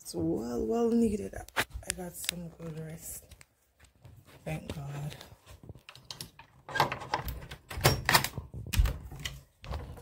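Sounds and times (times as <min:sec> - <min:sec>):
door unlocking clicks and rattles: 0:05.9 - 0:10.0.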